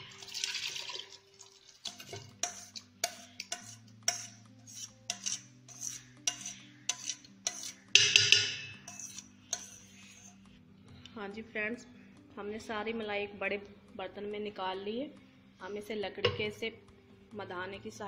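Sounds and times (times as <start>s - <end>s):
metal spoon scraping steel bowl: 1.8s - 10.6s.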